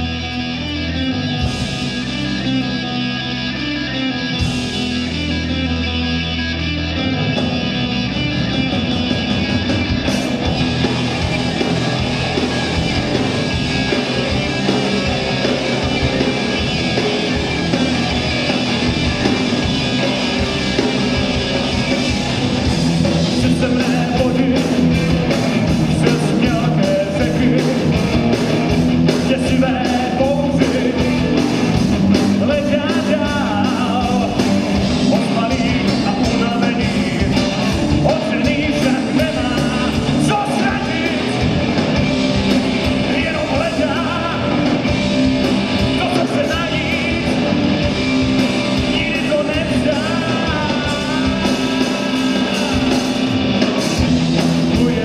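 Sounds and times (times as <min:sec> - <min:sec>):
bass guitar: 0:00.0 - 0:55.0
drums: 0:00.0 - 0:55.0
electric guitars: 0:00.0 - 0:55.0
person singing: 0:25.9 - 0:28.0, 0:32.4 - 0:41.6, 0:48.6 - 0:53.4.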